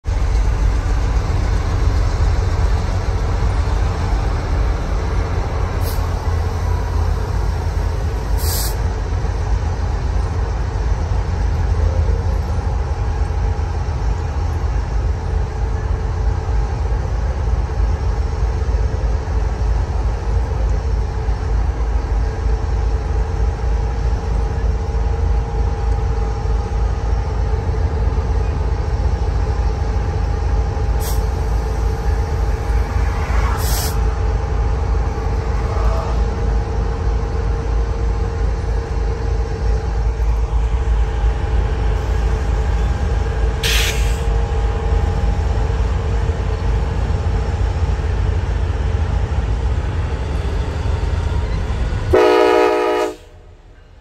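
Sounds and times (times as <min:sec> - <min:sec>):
diesel locomotive rumble: 0:00.0 - 0:54.0
faint engine hum: 0:00.0 - 0:54.0
car road noise: 0:29.6 - 0:52.2.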